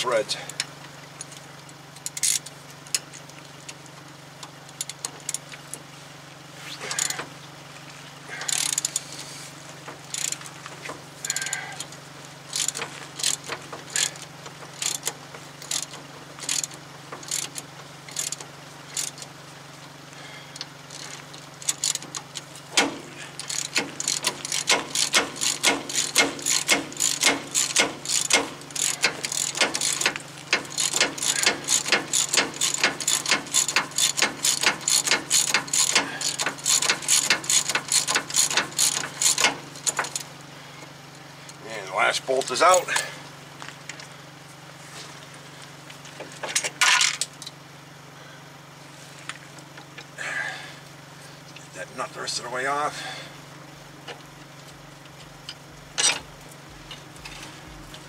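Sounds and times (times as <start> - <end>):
ratchet wrench clicking: 0.5 - 3.2, 6.9 - 7.2, 8.3 - 9.1, 9.9 - 10.5, 11.2 - 19.3, 20.6 - 40.3.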